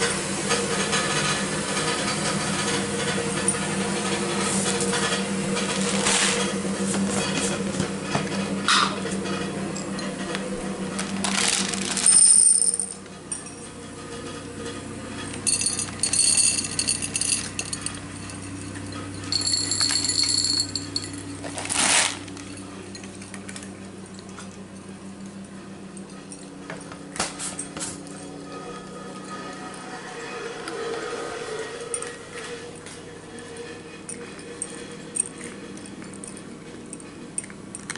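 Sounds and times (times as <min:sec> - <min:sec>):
steady low hum: 0:00.0 - 0:37.9
dry cat food rattling into dish: 0:11.0 - 0:12.9, 0:15.4 - 0:18.5, 0:19.3 - 0:22.6.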